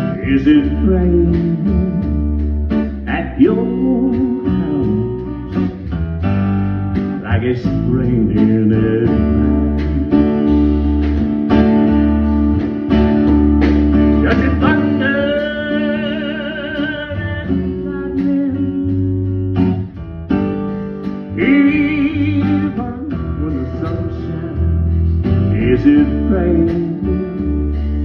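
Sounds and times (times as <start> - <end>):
man singing with vibrato: 0.0 - 2.3, 3.0 - 5.6, 7.2 - 10.4, 14.2 - 19.2, 21.3 - 27.5
drums: 0.0 - 28.0
electric bass: 0.0 - 28.0
strummed acoustic guitar: 0.0 - 28.0.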